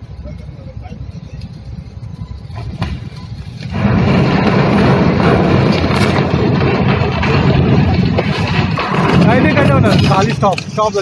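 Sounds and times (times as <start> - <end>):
wind rumble on microphone: 0.0 - 11.0
ship bow crashing and scraping crane: 3.0 - 11.0.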